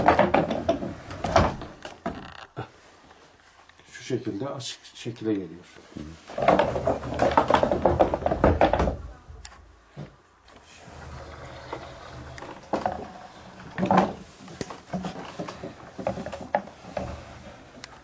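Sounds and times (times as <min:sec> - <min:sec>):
wooden knocks: 0:00.0 - 0:02.2, 0:06.3 - 0:09.1.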